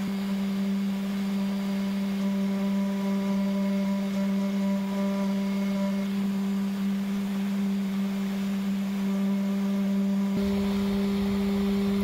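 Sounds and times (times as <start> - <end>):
router spindle humming: 0.0 - 12.0
low rumble: 10.4 - 12.0.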